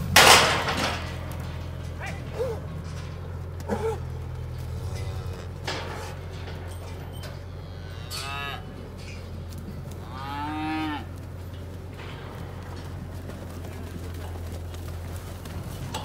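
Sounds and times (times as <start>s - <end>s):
cattle mooing and bawling: 1.9s - 11.3s.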